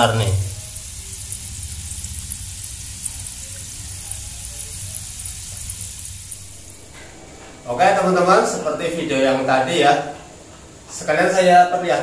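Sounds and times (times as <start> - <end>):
peanuts sizzling in oil: 0.0 - 7.0
low steady hum: 0.0 - 11.2
oil crackles and pops: 0.5 - 6.6.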